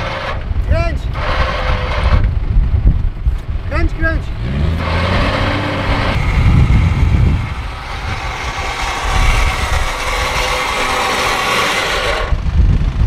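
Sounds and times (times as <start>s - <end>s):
electric winch motor whining: 6.1s - 12.5s.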